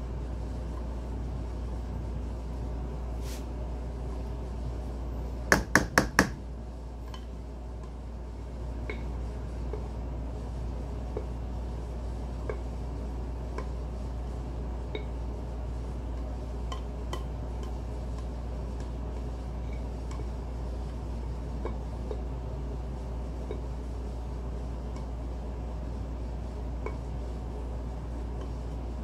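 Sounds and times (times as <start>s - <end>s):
steady low hum: 0.0s - 29.0s
faint ticks of batter: 13.5s - 13.8s, 19.7s - 20.4s.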